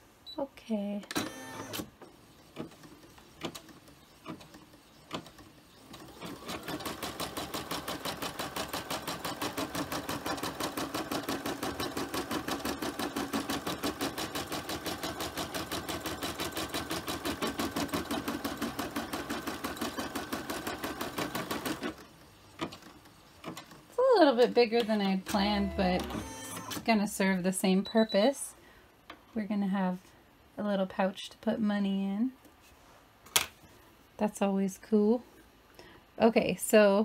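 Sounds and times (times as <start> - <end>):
sewing machine stitching: 2.6 - 23.7, 25.3 - 26.9.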